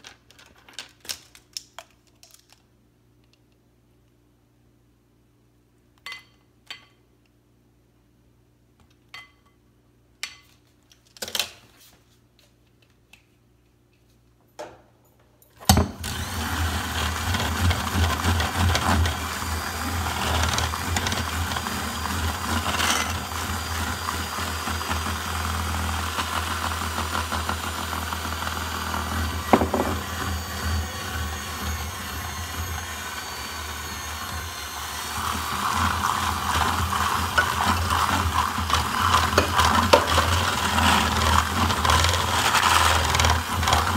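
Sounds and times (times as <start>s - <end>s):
electric hand mixer running: 15.7s - 43.9s.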